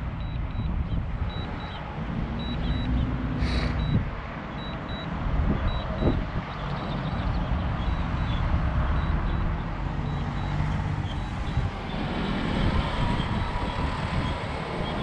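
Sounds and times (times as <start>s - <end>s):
road traffic: 0.0s - 15.0s
wind: 0.0s - 15.0s
short high beeps: 2.4s - 4.0s, 4.6s - 5.1s.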